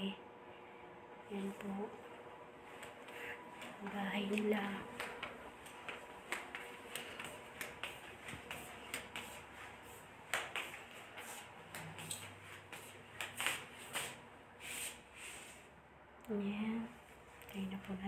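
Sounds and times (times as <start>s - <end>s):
footsteps on hard floor: 2.6s - 14.2s.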